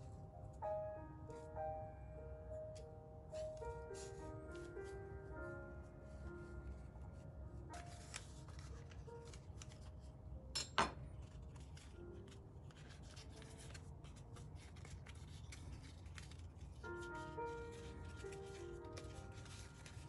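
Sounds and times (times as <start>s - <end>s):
faint background music: 0.0s - 20.0s
paper baking cup crinkling: 7.8s - 9.9s, 11.2s - 16.9s.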